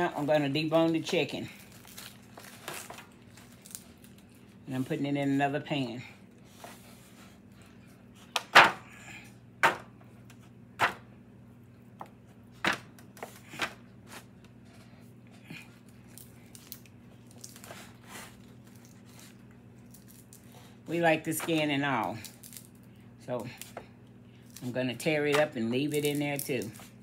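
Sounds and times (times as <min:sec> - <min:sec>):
foil pan clicking and crackling: 0:00.0 - 0:04.3
steady low hum: 0:00.0 - 0:27.0.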